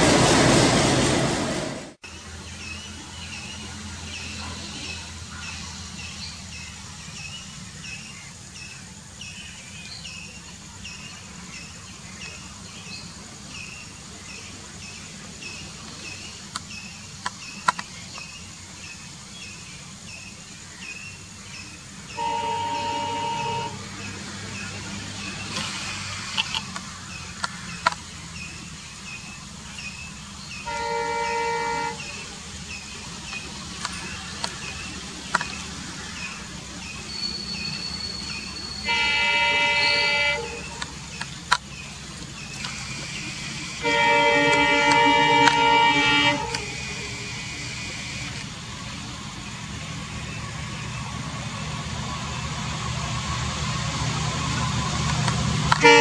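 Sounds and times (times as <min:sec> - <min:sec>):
low engine rumble: 0:10.1 - 0:56.0
locomotive air horn: 0:22.1 - 0:24.0, 0:30.6 - 0:32.4, 0:37.3 - 0:41.0, 0:43.8 - 0:48.2, 0:55.7 - 0:56.0.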